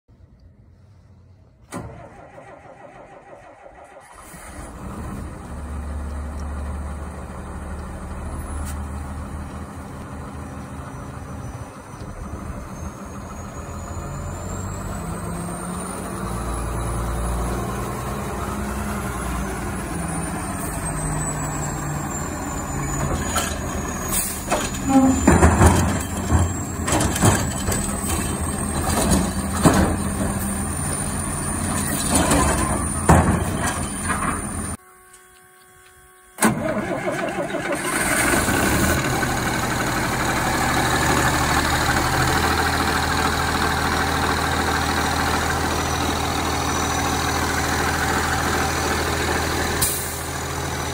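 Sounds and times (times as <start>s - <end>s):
garbage truck diesel engine: 0.1s - 50.9s
side-loader arm clanking: 10.9s - 50.9s.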